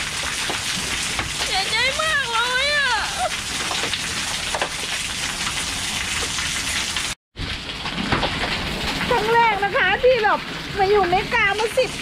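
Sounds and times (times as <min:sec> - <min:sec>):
heavy rain on pavement: 0:00.0 - 0:12.0.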